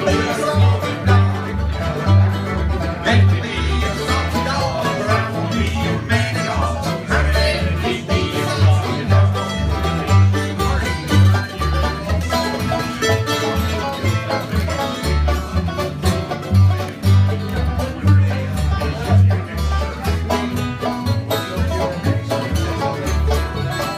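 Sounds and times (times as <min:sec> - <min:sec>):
acoustic guitar: 0:00.0 - 0:23.9
banjo picking: 0:00.0 - 0:23.9
mandolin picking: 0:00.0 - 0:23.9
upright bass plucking: 0:00.0 - 0:23.9.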